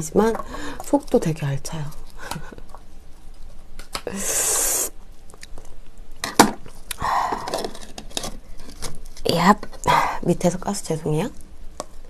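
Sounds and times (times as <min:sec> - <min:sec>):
chewing: 0:05.2 - 0:06.0.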